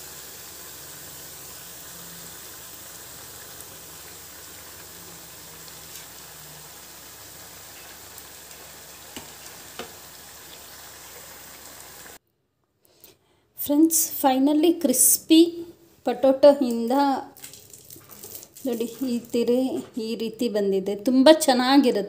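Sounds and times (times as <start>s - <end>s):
hot oil sizzling: 0.0s - 12.2s.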